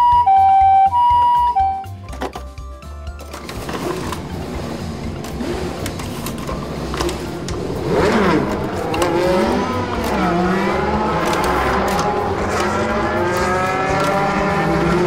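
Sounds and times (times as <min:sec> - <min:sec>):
toy race car engine revving: 0:03.4 - 0:15.0
plastic toy handling clicks: 0:11.2 - 0:14.3.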